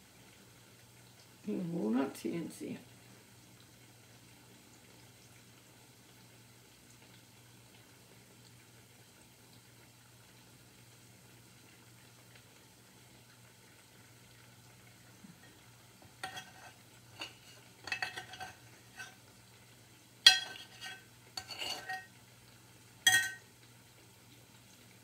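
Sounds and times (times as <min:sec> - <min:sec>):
faint steady hum: 0:00.0 - 0:25.0
metal utensil scraping glass bowl: 0:16.2 - 0:19.2, 0:20.3 - 0:22.1, 0:23.1 - 0:23.4.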